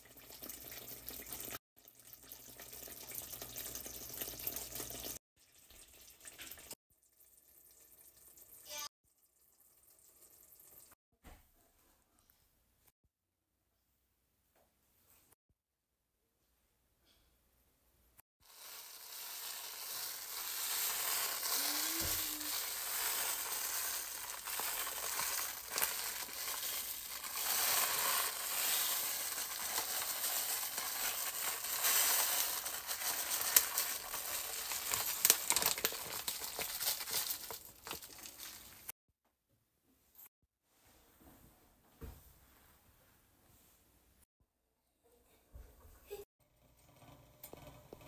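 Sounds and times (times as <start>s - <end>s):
rice sizzling in a pot: 0.0s - 6.8s, 18.4s - 38.9s.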